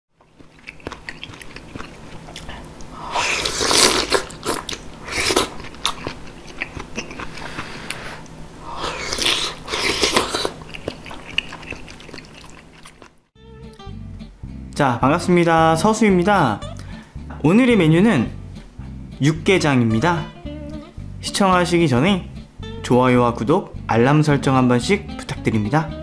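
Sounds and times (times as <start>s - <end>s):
chewing: 0.2s - 13.3s
blowing and slurping soup: 3.0s - 5.6s, 7.0s - 13.2s.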